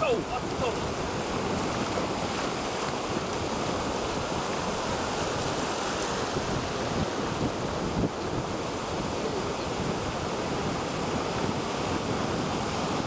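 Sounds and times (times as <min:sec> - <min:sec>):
surf washing ashore: 0:00.0 - 0:13.0
wind buffeting microphone: 0:00.0 - 0:13.0.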